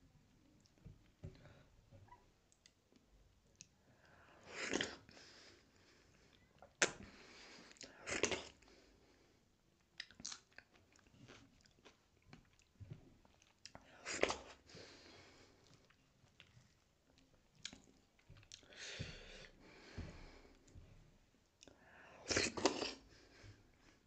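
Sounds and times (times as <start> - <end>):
person chewing wetly: 6.3 - 8.7, 9.8 - 14.6, 15.6 - 20.6.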